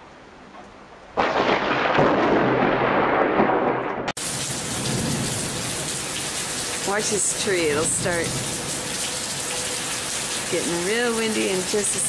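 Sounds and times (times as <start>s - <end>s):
thunderclap rumbling: 1.2s - 12.0s
heavy rain pouring: 3.7s - 12.0s.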